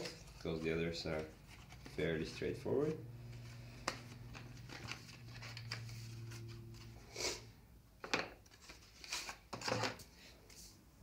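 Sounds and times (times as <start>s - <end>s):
low steady hum: 0.0s - 8.0s.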